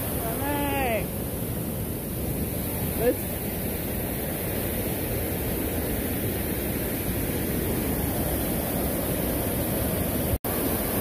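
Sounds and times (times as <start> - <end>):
waterfall and rapids rushing: 0.0 - 11.0.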